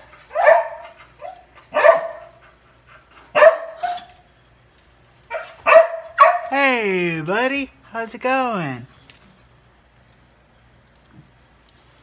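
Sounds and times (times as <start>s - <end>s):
dog barking: 0.3s - 1.0s, 1.7s - 2.4s, 3.3s - 4.0s, 5.3s - 6.6s.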